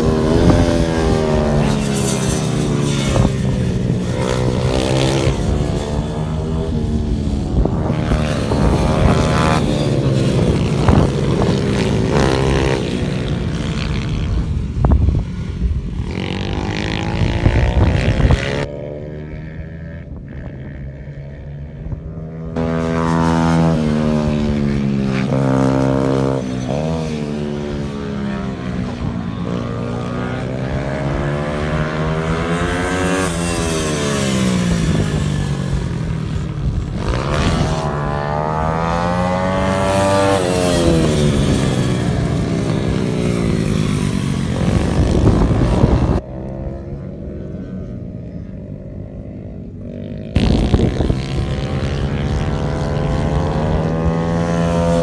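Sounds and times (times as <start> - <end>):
motorcycle engines accelerating: 0.0 - 55.0.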